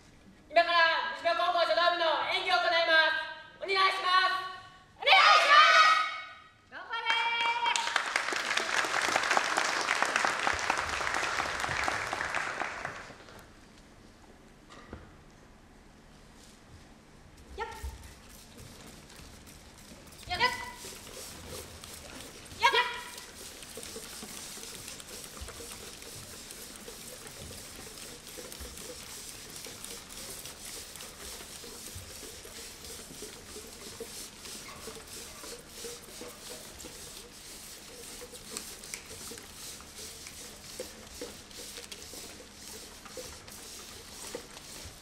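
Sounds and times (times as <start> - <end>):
audience applauding: 7.4 - 13.4.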